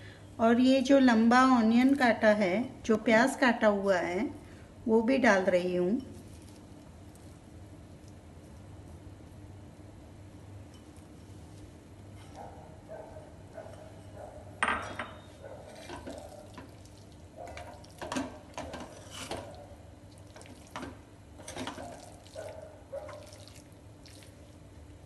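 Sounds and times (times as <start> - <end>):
spoon stirring thick food: 15.2 - 24.4.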